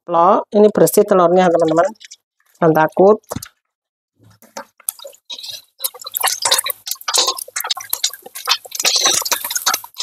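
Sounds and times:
oil crackling and spitting: 4.4s - 10.0s
metal spatula scraping a wok: 4.9s - 10.0s.

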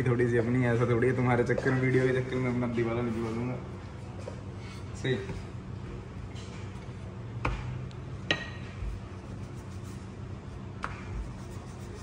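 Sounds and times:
sharp knocks of cookware: 8.3s - 8.7s.

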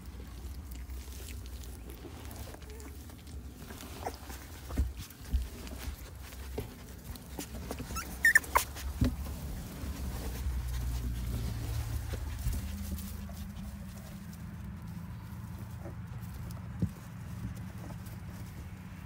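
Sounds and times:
rustling in straw: 0.0s - 19.0s
puppy whimpering: 1.8s - 4.5s, 7.2s - 8.9s.

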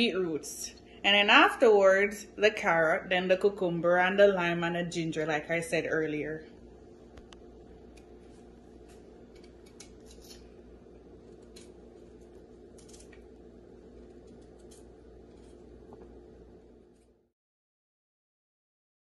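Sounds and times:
steady low hum: 0.0s - 17.3s
knife scraping beetroot skin: 8.1s - 10.5s.

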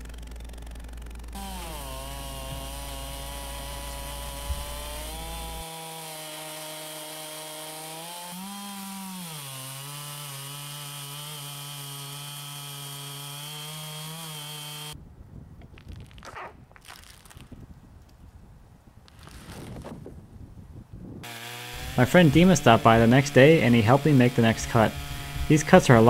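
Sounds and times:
chainsaw cutting through log: 0.0s - 15.0s, 21.2s - 26.0s.

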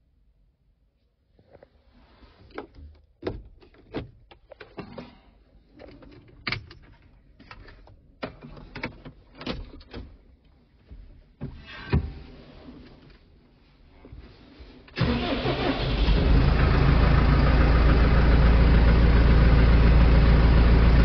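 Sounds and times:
clicks and knocks of handling: 2.5s - 11.6s.

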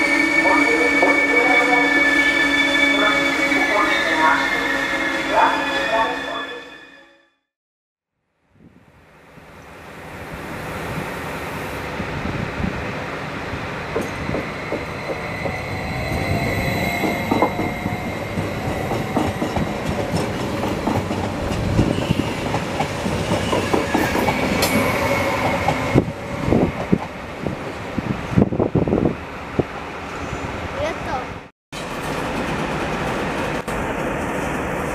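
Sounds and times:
high-pitched wheel squeal: 14.0s - 19.6s.

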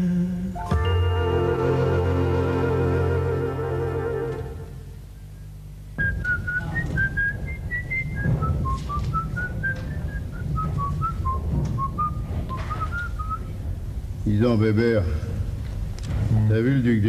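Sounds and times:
low hum: 0.0s - 17.0s
person whistling a slow tune: 6.0s - 13.5s.

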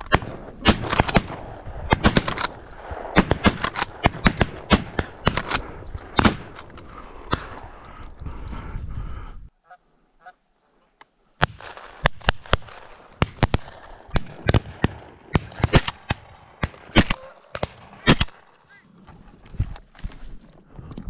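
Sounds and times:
shotgun shots: 0.0s - 6.7s, 11.4s - 18.4s
geese honking: 9.6s - 10.4s.

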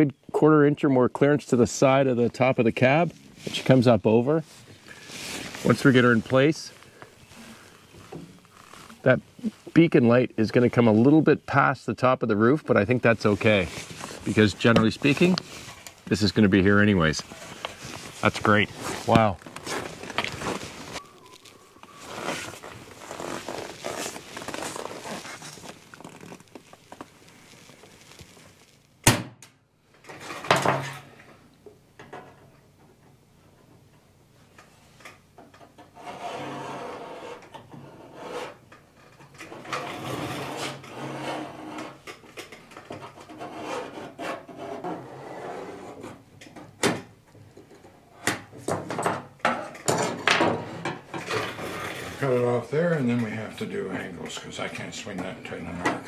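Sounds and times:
tools scraping steel sheet: 35.9s - 38.6s, 39.4s - 42.0s, 42.8s - 46.2s.

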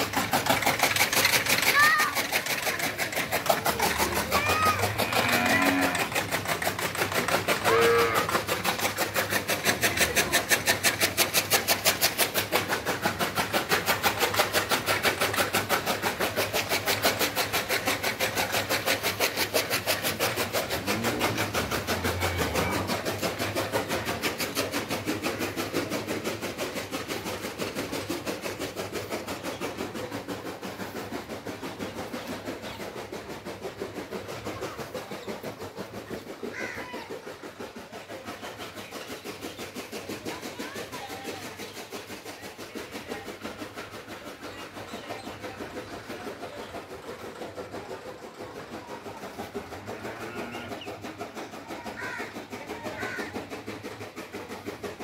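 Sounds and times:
machine clattering: 0.0s - 37.6s.

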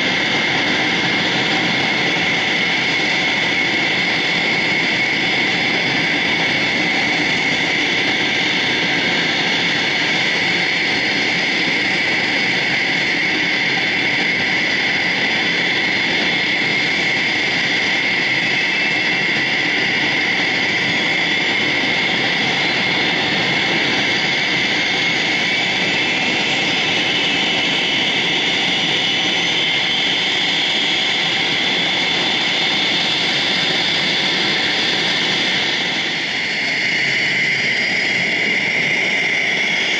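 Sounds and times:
jet engine whine: 0.0s - 39.9s.

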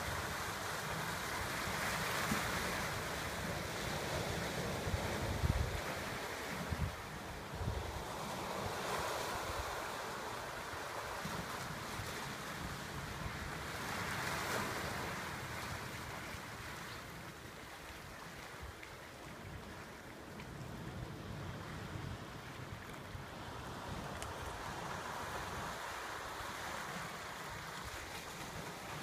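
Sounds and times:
surf washing into rocks: 0.0s - 16.5s
wind buffeting microphone: 4.4s - 9.8s.

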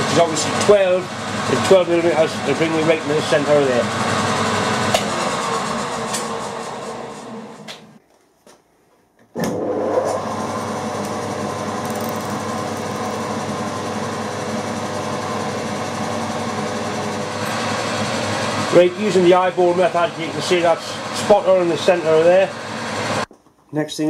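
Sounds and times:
milling machine running: 10.4s - 23.2s.

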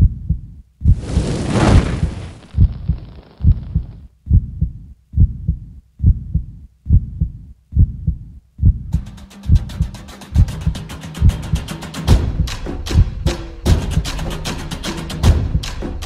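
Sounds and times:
heartbeat thumps: 0.0s - 1.0s, 2.4s - 10.6s
hiss: 1.0s - 3.5s
percussive music with rapid ticks: 8.9s - 16.0s.

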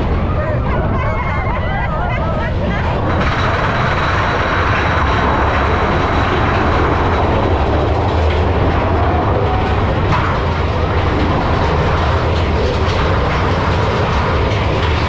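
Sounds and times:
roller coaster rumbling and rattling: 0.0s - 15.0s.

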